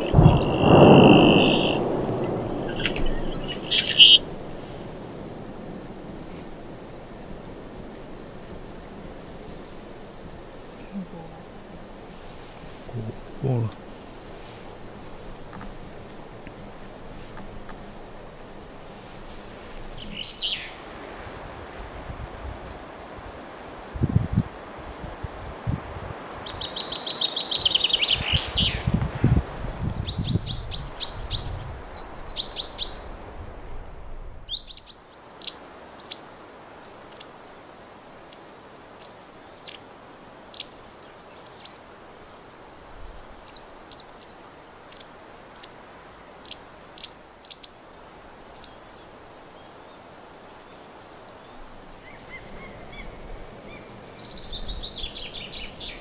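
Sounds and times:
small bird high chirps: 0:00.0 - 0:01.9, 0:02.7 - 0:04.3
bird singing fast falling trill: 0:00.0 - 0:05.0, 0:20.0 - 0:20.8, 0:26.1 - 0:28.9, 0:34.5 - 0:35.6, 0:51.0 - 0:56.0.

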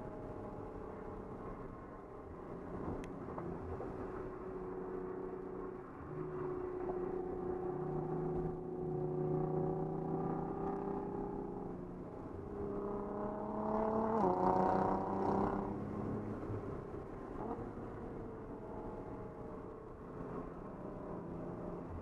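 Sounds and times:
car engine revving: 0:06.0 - 0:11.7.

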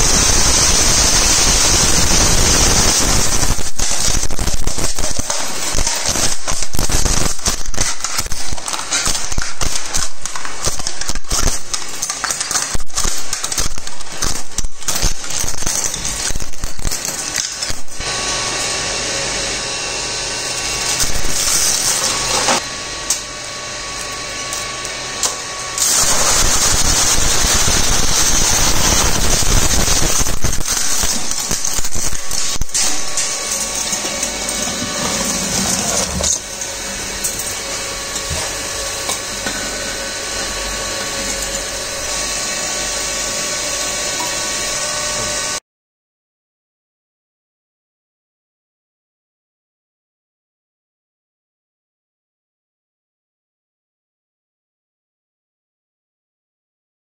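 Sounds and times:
shredder crunching plastic: 0:00.0 - 0:45.6
shredder whining: 0:00.0 - 0:45.6.

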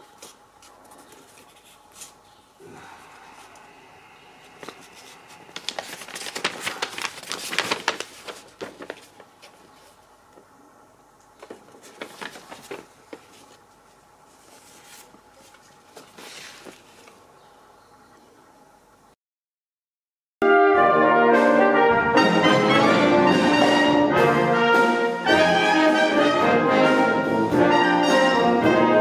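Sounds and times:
paper rustling and crinkling: 0:00.0 - 0:02.4, 0:04.4 - 0:10.1, 0:11.2 - 0:17.3.

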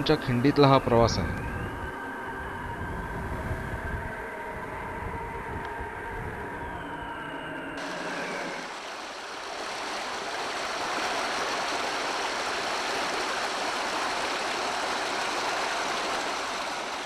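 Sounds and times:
stream rushing over boulders: 0:07.8 - 0:17.0.

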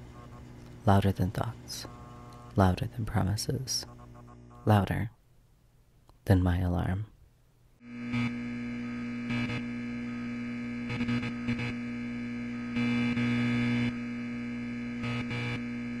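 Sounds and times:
electrical buzzing hum: 0:00.0 - 0:05.2, 0:07.8 - 0:16.0.

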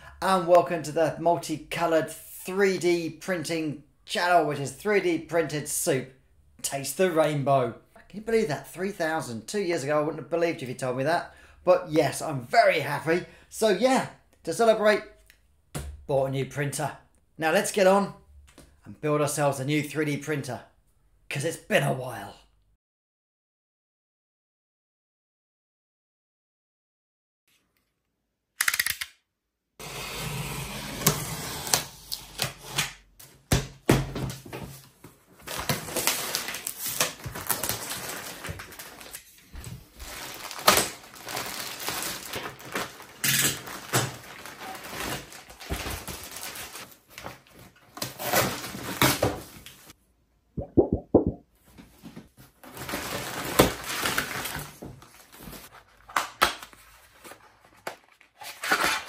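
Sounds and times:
plastic wrap crinkling: 0:40.0 - 0:47.5
knife cutting packing tape: 0:58.4 - 0:59.0.

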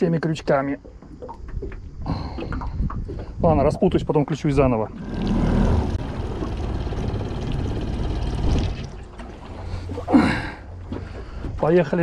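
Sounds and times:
water sloshing around boat: 0:00.0 - 0:12.0
wind noise: 0:01.1 - 0:10.0.

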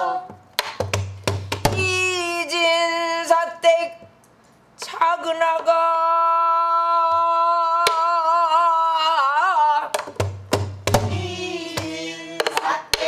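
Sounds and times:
woman singing with vibrato: 0:00.0 - 0:00.4, 0:01.8 - 0:04.0, 0:04.8 - 0:10.0.

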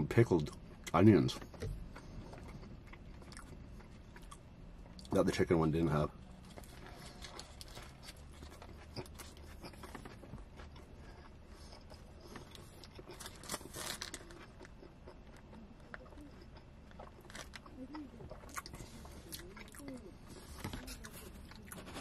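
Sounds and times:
close chewing with crunching: 0:00.4 - 0:05.2, 0:06.3 - 0:22.0.

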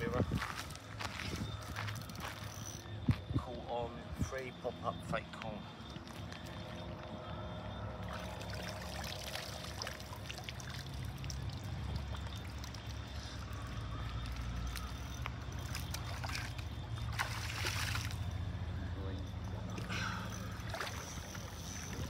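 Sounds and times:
water pouring and trickling: 0:07.9 - 0:18.5, 0:19.4 - 0:22.0
small splashes: 0:15.6 - 0:18.3, 0:19.7 - 0:22.0.

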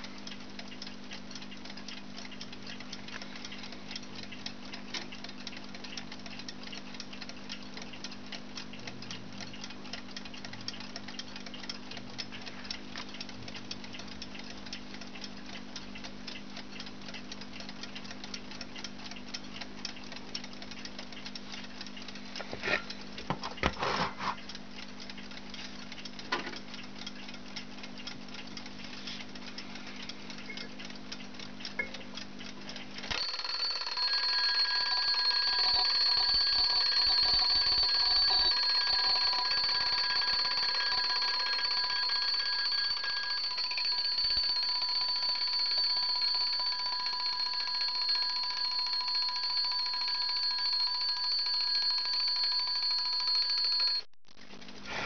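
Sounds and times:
alarm clock ticking: 0:00.0 - 0:23.7, 0:24.4 - 0:54.1
alarm clock bells ringing: 0:33.1 - 0:54.1.

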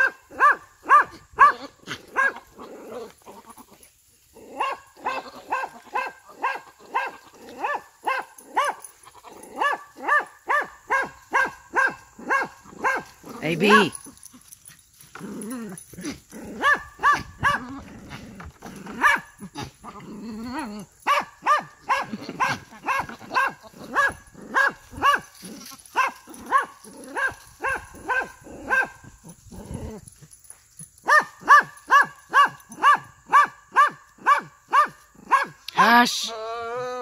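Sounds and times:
low rough grunting: 0:17.4 - 0:21.0.

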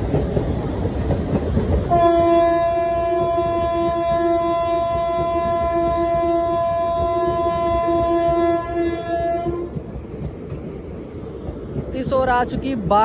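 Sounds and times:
locomotive air horn blast: 0:01.9 - 0:09.7.

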